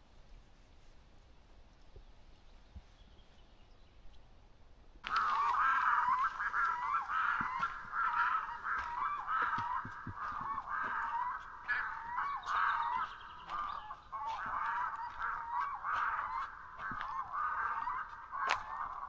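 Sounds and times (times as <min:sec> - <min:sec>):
waterbirds calling: 0:05.0 - 0:19.0.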